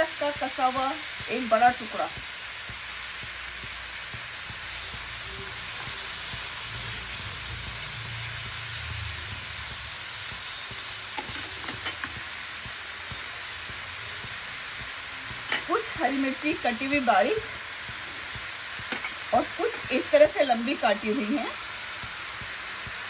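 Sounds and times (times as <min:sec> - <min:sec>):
onions sizzling in hot oil: 0:00.0 - 0:23.0.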